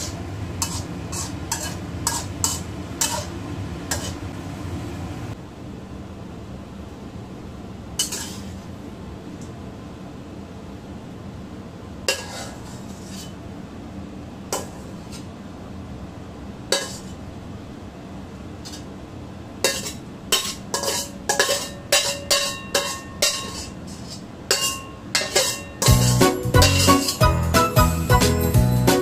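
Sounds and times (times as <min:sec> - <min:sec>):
metal spatula clinking against wok: 0:00.6 - 0:03.3, 0:19.7 - 0:23.8, 0:24.5 - 0:27.2
music: 0:25.9 - 0:29.0.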